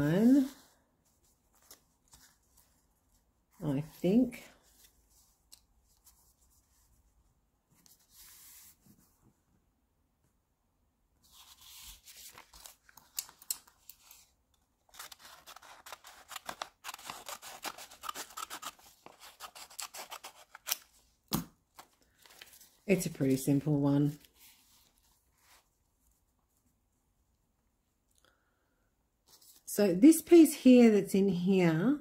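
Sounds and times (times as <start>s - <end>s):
paper rustling: 0.3s - 7.0s, 11.2s - 21.0s, 21.7s - 26.3s
scissors snipping paper: 14.9s - 20.9s.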